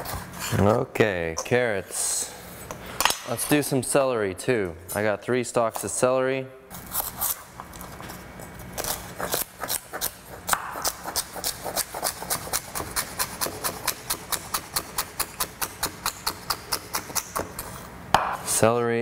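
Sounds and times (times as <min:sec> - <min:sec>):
knife chopping on wooden board: 0:10.5 - 0:18.4.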